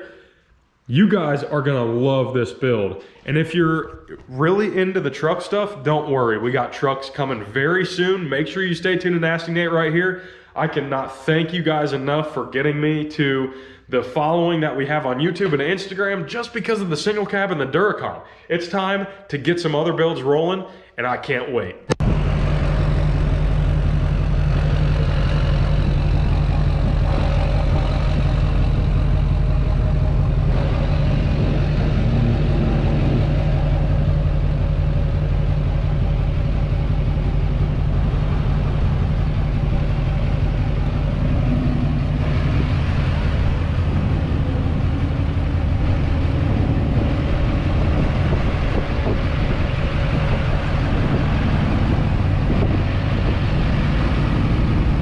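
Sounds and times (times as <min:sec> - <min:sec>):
diesel pickup idling: 0:22.0 - 0:55.0.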